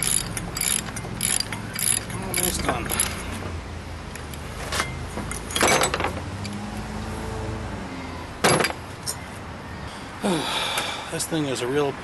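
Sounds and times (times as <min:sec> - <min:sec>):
wrench clanking against metal: 0:00.0 - 0:03.2, 0:04.8 - 0:06.6.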